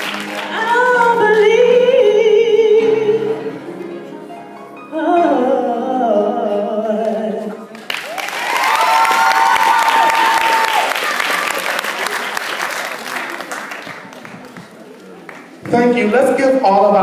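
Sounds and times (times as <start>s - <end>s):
applause: 0.0s - 0.8s, 7.8s - 15.6s
woman singing into a microphone: 0.5s - 3.5s, 4.9s - 7.8s.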